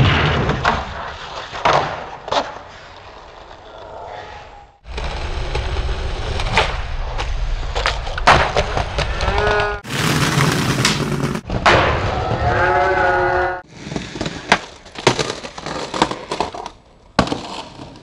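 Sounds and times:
skateboard wheels rolling on concrete: 0.5s - 12.6s, 13.5s - 18.0s
skateboard popping and landing clacks: 6.4s - 12.1s, 13.9s - 18.0s.

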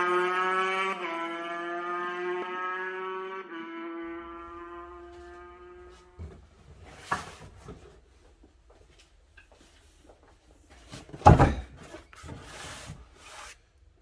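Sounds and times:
cardboard box thud on workbench: 11.0s - 11.9s.

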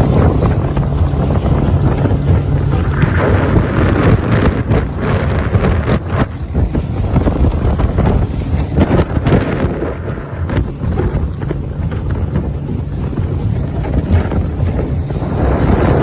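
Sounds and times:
boat engine droning: 0.0s - 16.0s
hull slapping choppy water: 0.0s - 16.0s
wind buffeting microphone: 0.0s - 16.0s.

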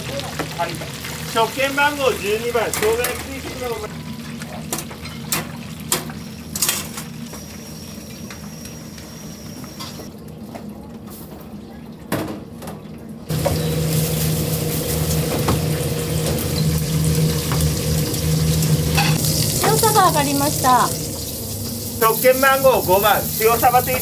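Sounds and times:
kitchen equipment humming: 0.0s - 24.0s
utensils clinking against metal pot: 18.9s - 19.9s.

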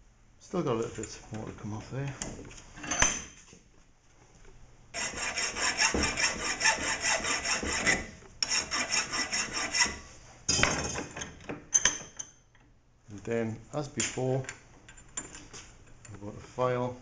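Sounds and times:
hand file rasping on metal: 5.0s - 10.1s.

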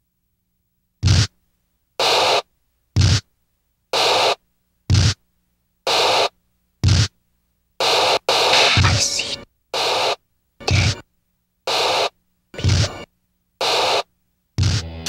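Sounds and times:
static noise bursts: 7.8s - 11.0s, 11.7s - 14.8s.

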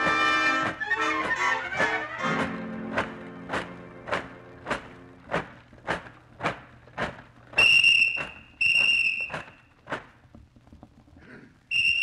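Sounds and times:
footsteps: 0.0s - 11.4s
shrill whistle blasts: 7.6s - 9.7s, 11.7s - 12.0s.

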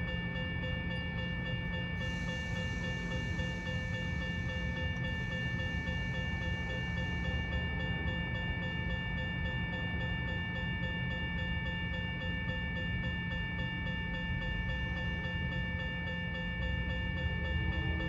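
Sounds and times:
crossing warning bell ringing: 0.0s - 18.0s.

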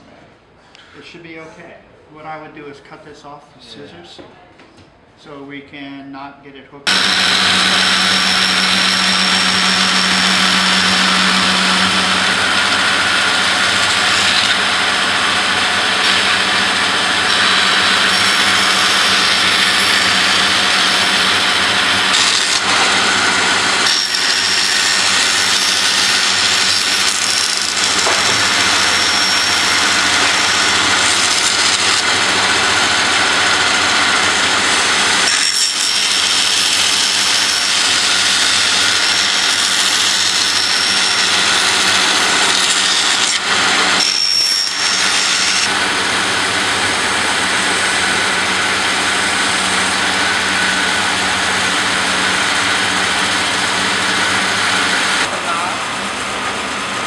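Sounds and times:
high thin whine: 6.9s - 34.9s
band saw cutting: 6.9s - 57.0s.

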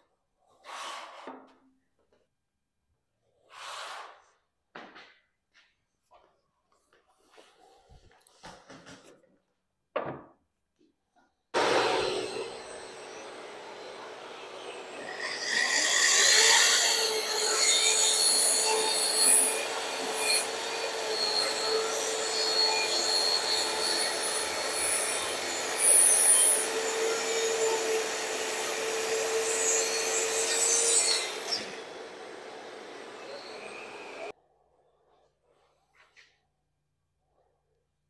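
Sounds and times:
power tool cutting wood: 11.6s - 34.3s.

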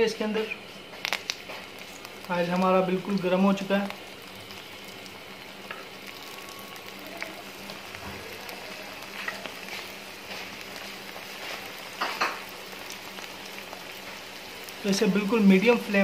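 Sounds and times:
food deep-frying in hot oil: 0.0s - 16.0s.

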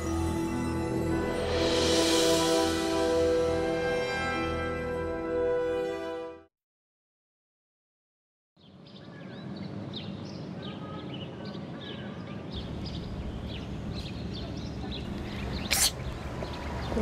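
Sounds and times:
small birds chirping: 8.6s - 17.0s
steady low rumble: 12.6s - 17.0s.

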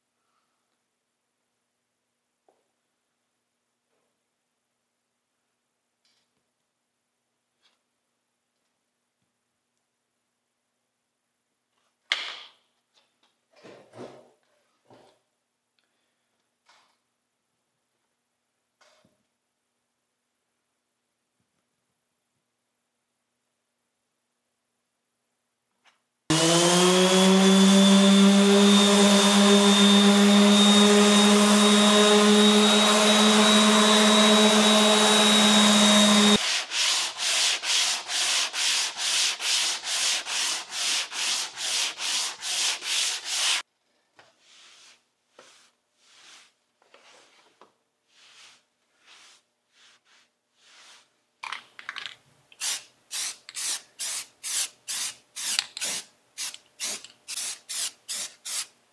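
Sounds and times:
electric sander whine: 26.3s - 36.4s
hand-sanding strokes: 26.3s - 43.6s, 44.4s - 47.4s, 48.0s - 51.2s.

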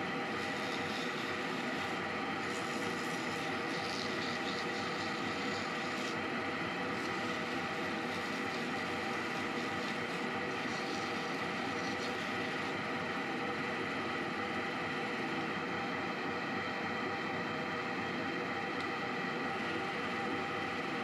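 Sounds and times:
lathe motor hum: 0.0s - 21.0s
ring being sanded by hand: 0.2s - 12.8s.

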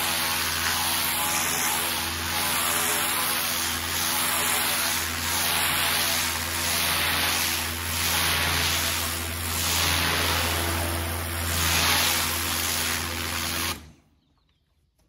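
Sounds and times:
pressure washer motor humming: 0.0s - 14.0s
pressure washer spray hissing: 2.5s - 13.9s.

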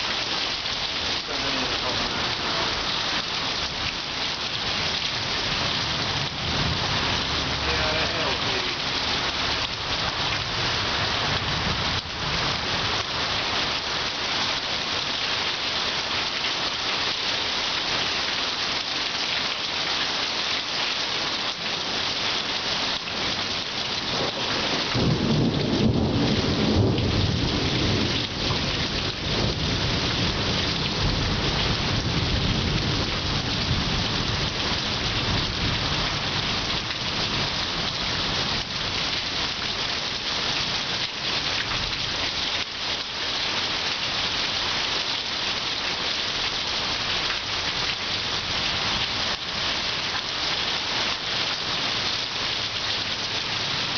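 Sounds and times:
heavy rain pouring: 0.0s - 53.9s
thunder rumbling: 24.1s - 34.4s.

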